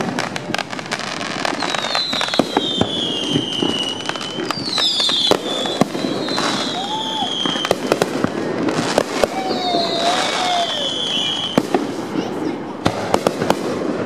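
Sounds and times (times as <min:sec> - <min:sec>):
firework shells bursting and crackling: 0:00.0 - 0:14.0
firework whistles sliding down: 0:01.2 - 0:08.1, 0:08.7 - 0:12.2.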